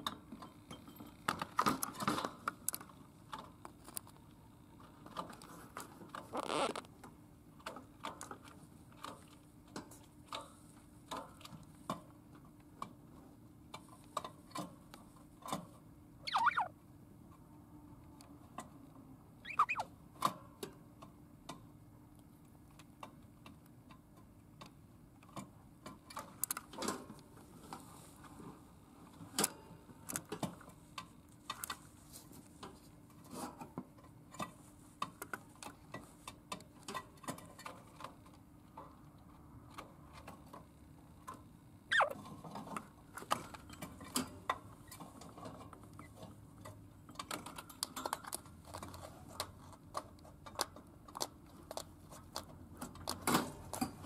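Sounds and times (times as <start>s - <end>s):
budgerigar falling chirps: 16.3s - 16.7s, 19.5s - 19.8s, 41.9s - 42.2s.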